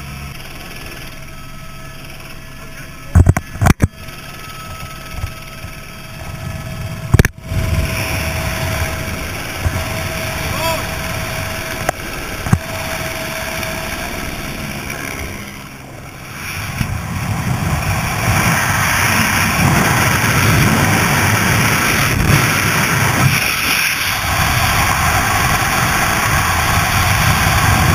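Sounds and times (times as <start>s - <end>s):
helicopter turbine and rotor: 0.0s - 27.9s
freefall wind rushing: 6.2s - 27.9s.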